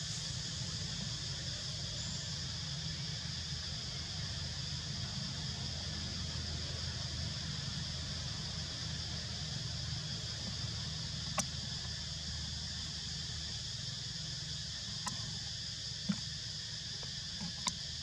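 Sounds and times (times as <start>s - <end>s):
faint sharp clicks: 11.2s - 11.5s, 15.0s - 15.3s, 17.4s - 17.8s.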